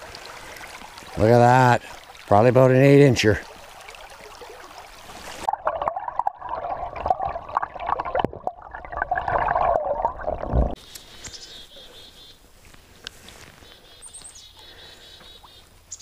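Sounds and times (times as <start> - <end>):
underwater stream gurgling: 0.0 - 10.8
faint stream sound: 0.0 - 16.0.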